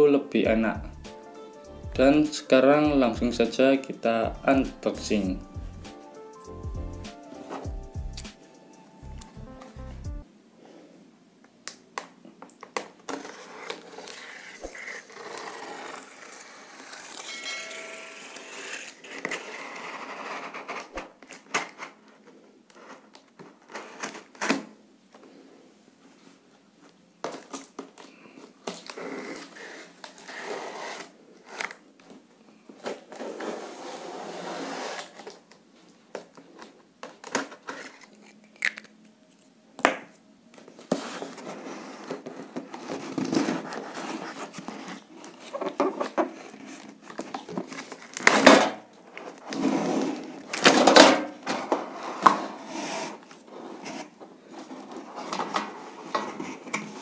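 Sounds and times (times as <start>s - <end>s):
cardboard scraping and rustling: 32.8s - 35.4s, 40.7s - 57.0s.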